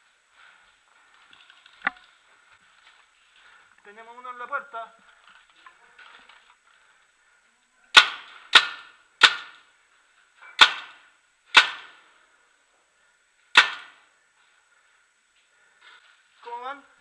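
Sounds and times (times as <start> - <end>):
paintball marker shots: 7.9 - 9.6, 10.6 - 12.0, 13.5 - 14.0.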